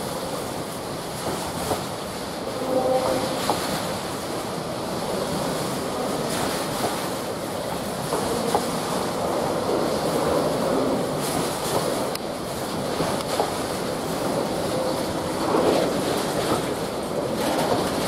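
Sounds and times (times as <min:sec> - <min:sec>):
train rumbling on rails: 0:00.0 - 0:18.0
light clicks of rails: 0:01.2 - 0:02.2, 0:05.1 - 0:18.0.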